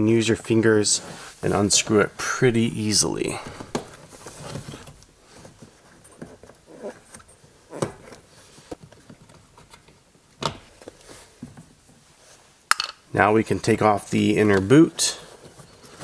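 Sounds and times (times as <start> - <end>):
plastic trim rustling: 1.5 - 6.6.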